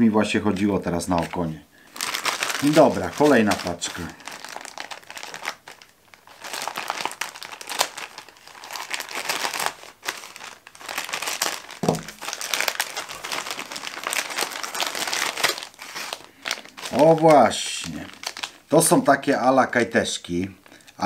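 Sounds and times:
plastic bag crinkling: 1.0s - 19.0s
low knock: 11.8s - 12.2s.

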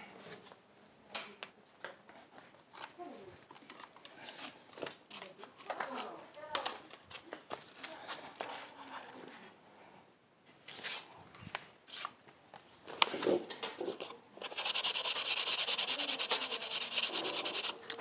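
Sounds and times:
rapid rhythmic abrasive scraping: 14.4s - 17.8s.

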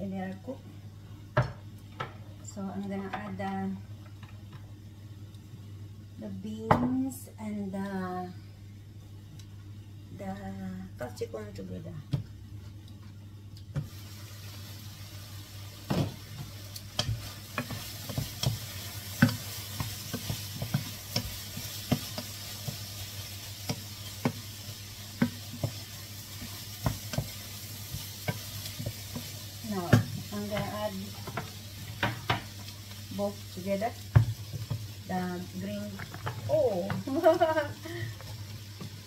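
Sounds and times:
food sizzling in a pot: 13.2s - 39.0s.

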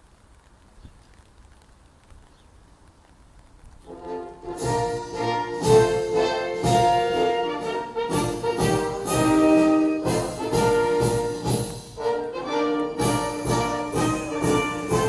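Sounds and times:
brass band music: 3.9s - 15.0s.

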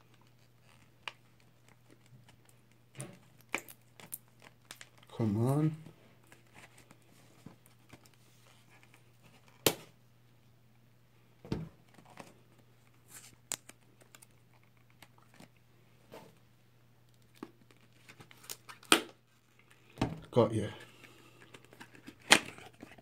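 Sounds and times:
cardboard crinkling and clicks: 21.4s - 23.0s.

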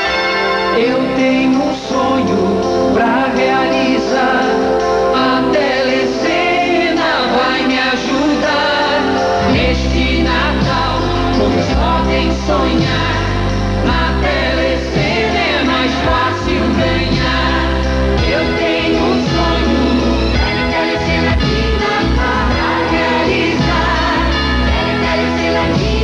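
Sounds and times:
pop backing track: 0.0s - 26.0s
voices singing a jingle: 0.0s - 26.0s
heavy bass: 9.4s - 26.0s.

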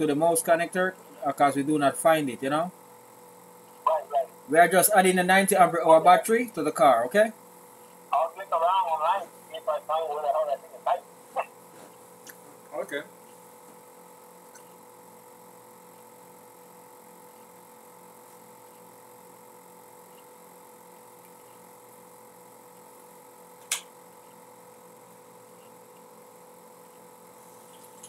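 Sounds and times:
electrical hum and whine: 0.0s - 28.0s
sharp click: 23.6s - 23.9s.

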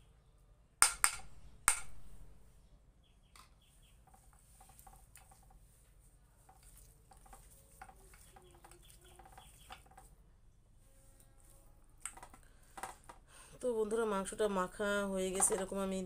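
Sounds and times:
hand squishing meat in bowl: 4.1s - 10.1s.

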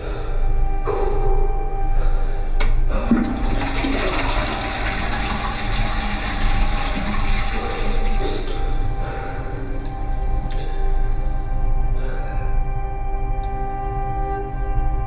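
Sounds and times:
toilet flushing: 3.0s - 10.3s.

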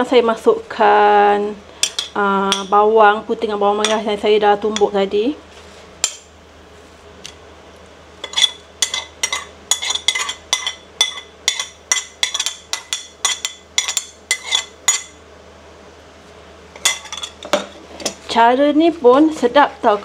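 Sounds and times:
metal spoon clinking on ceramic plate: 8.2s - 15.2s, 16.8s - 17.6s.

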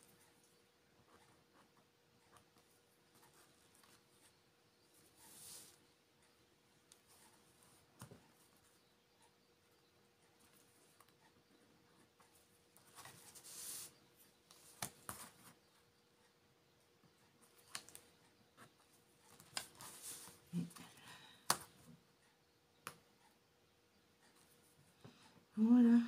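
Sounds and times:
small clicks and taps: 22.7s - 23.1s.

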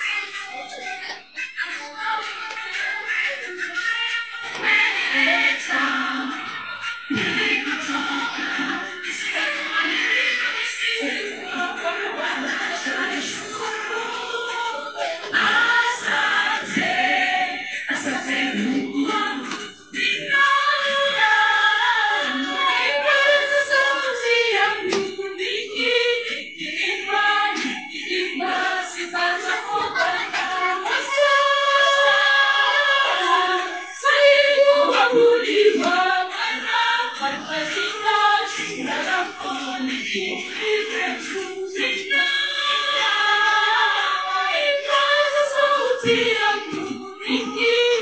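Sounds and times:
choir singing: 0.0s - 48.0s.

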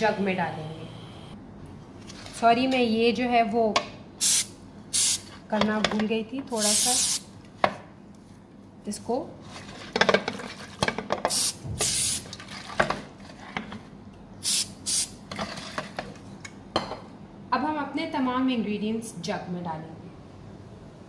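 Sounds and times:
aerosol spray hissing: 6.6s - 7.2s.

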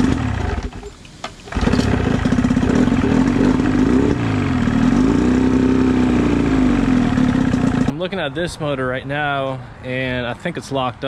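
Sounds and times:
outboard engine running: 1.5s - 7.9s.

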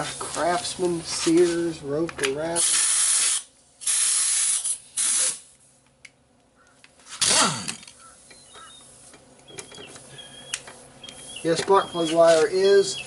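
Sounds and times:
pneumatic tool air bursts: 2.6s - 5.5s.

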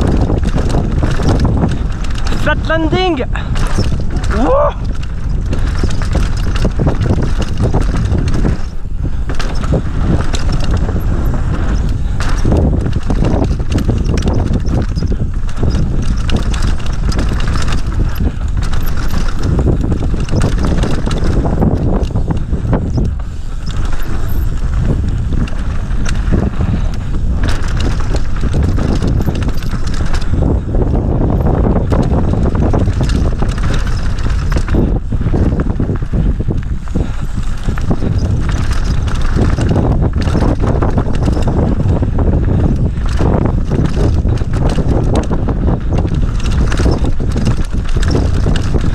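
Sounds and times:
bike knocking and rattling: 0.0s - 48.9s
bike tyres on dirt: 0.0s - 48.9s
wind on microphone: 0.0s - 48.9s.

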